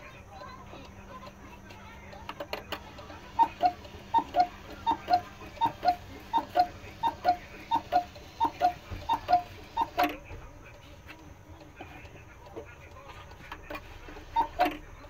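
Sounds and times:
clock movement clicking: 0.0s - 15.0s
cuckoo clock call: 2.7s - 10.2s, 14.2s - 14.8s.

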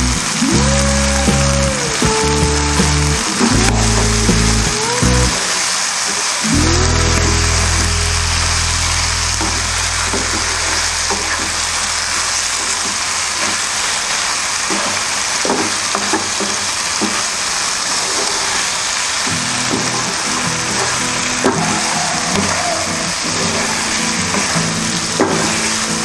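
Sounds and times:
livers sizzling in oil: 0.0s - 26.0s
low hum: 6.4s - 13.6s.

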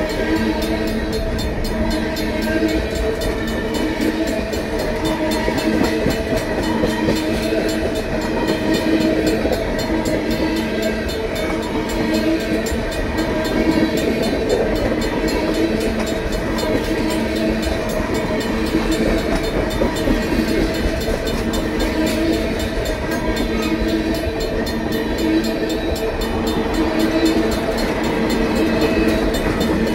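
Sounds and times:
crossing bells ringing: 0.0s - 29.9s
train wheels rumbling on rails: 0.0s - 29.9s.

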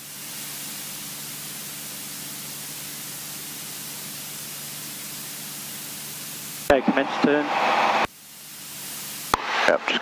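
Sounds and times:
aircraft engine low hum: 6.6s - 8.1s
intercom hiss: 6.6s - 8.1s, 9.3s - 10.0s.

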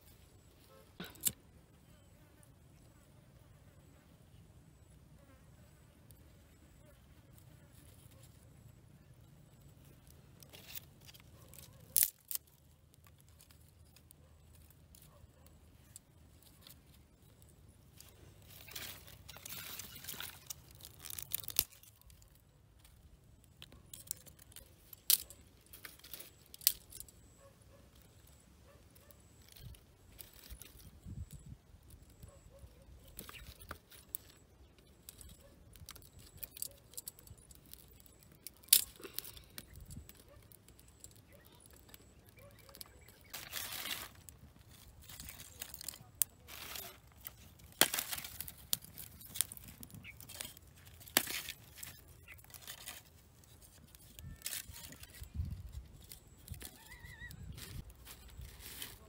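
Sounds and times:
twigs rustling: 7.3s - 59.0s
twigs snapping: 9.9s - 17.4s, 18.0s - 27.1s, 33.0s - 59.0s.

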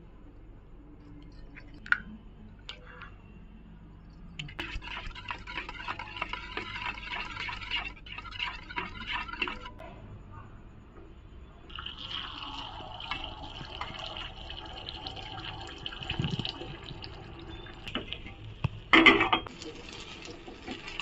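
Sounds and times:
spoon beating eggs in steel bowl: 4.5s - 9.8s.

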